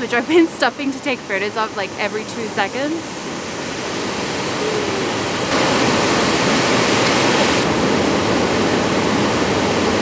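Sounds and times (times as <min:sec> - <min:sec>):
water rushing through rocky gorge: 0:03.3 - 0:10.0.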